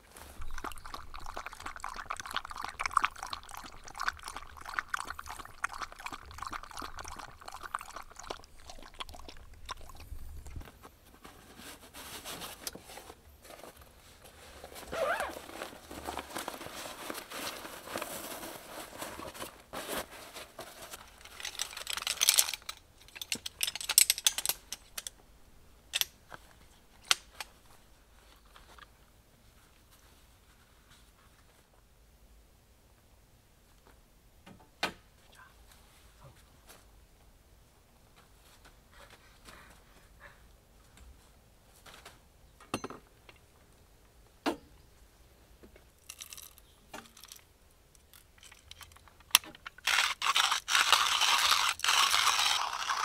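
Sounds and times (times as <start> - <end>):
crunching and crinkling: 0.0 - 25.0, 46.0 - 53.0
dog lapping water: 0.5 - 10.6.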